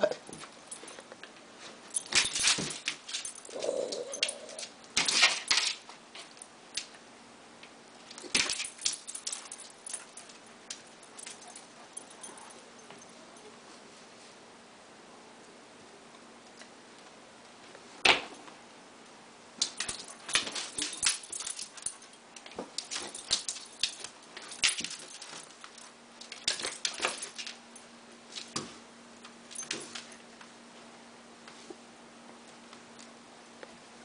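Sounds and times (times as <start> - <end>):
puppy feet clicking and scuffling: 0.2 - 7.0, 8.0 - 13.8, 19.6 - 30.8.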